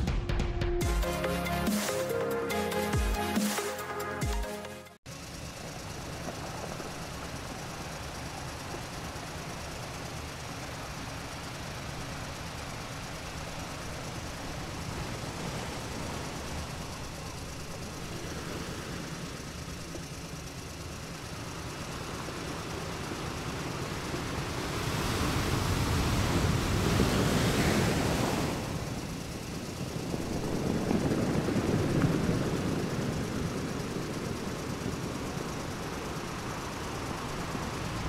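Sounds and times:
surf on a beach: 6.2s - 38.0s.

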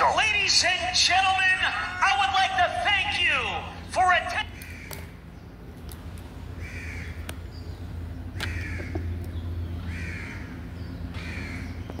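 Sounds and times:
steady low hum: 0.0s - 12.0s
crow cawing: 4.5s - 5.1s, 6.6s - 7.2s, 8.4s - 9.1s, 9.8s - 11.8s.

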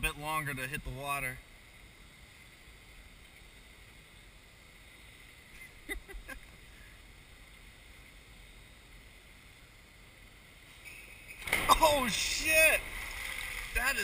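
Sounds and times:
faint steady hiss: 0.0s - 14.0s.

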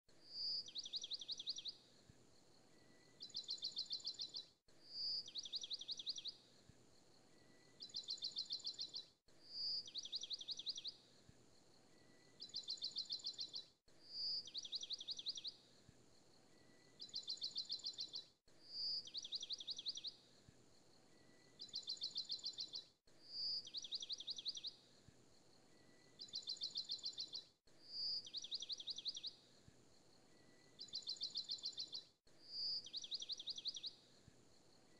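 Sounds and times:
bird chirping: 0.3s - 1.8s, 2.7s - 6.4s, 7.3s - 11.0s, 11.9s - 15.6s, 16.5s - 20.2s, 21.1s - 24.8s, 25.7s - 29.4s, 30.3s - 34.1s.

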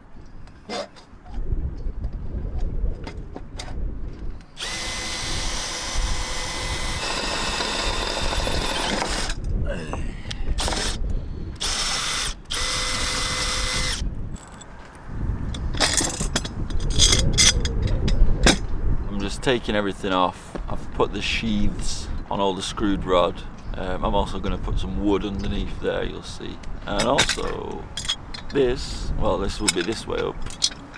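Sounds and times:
electric drill running: 4.6s - 9.4s, 10.6s - 11.0s, 11.6s - 14.0s
metal parts clattering: 15.7s - 18.0s, 27.0s - 28.6s, 29.6s - 30.9s.

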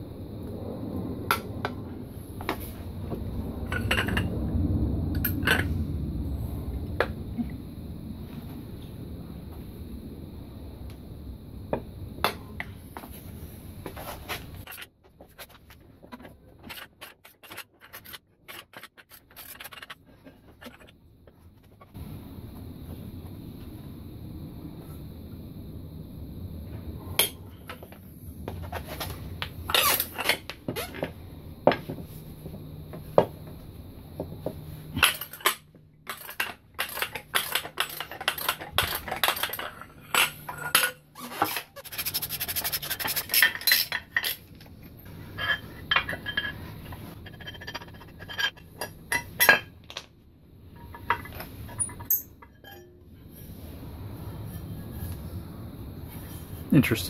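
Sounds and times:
metal parts clanking: 3.7s - 4.3s, 14.6s - 20.9s, 34.9s - 42.1s, 50.8s - 52.9s.

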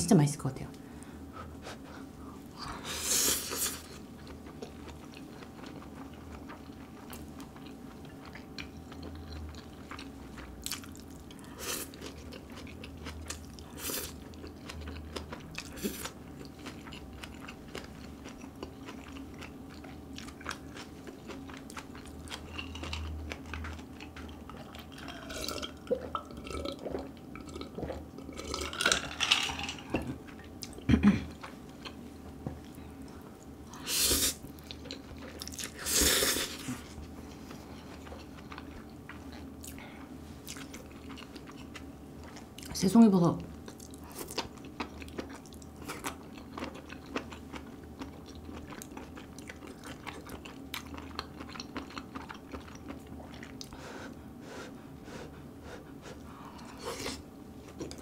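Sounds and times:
chewing with wet clicks: 4.2s - 29.1s, 29.7s - 32.0s, 34.4s - 35.8s, 37.3s - 42.8s, 43.6s - 53.8s, 57.6s - 58.0s.

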